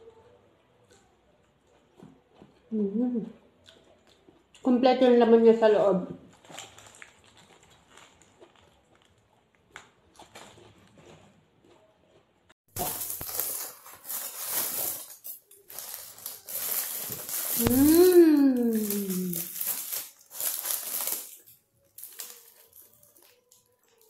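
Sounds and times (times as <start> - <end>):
faint chewing: 0.0 - 4.7, 6.3 - 13.0
paper wrapping crinkling: 6.3 - 10.4, 12.7 - 24.0
person humming mmm: 17.6 - 19.5.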